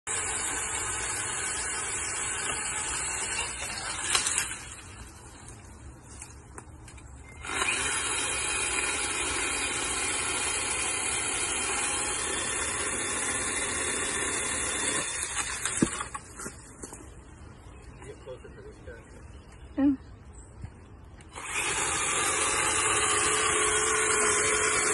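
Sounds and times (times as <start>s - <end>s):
electric pole saw whirring: 0.0s - 5.3s, 7.3s - 16.3s, 21.3s - 24.9s.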